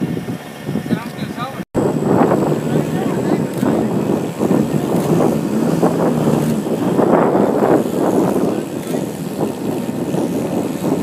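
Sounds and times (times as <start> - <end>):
wind noise on microphone: 0.0 - 11.0
voices: 0.9 - 9.6
car engine running: 1.8 - 11.0.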